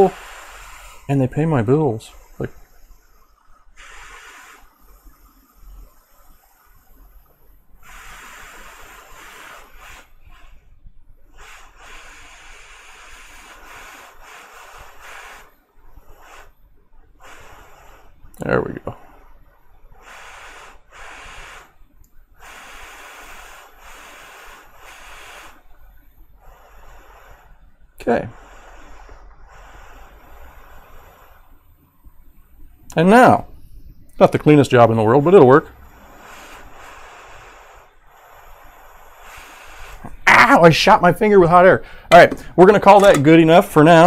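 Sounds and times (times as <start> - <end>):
soft air hiss: 0.0 - 44.0
faint low hum: 21.7 - 44.0.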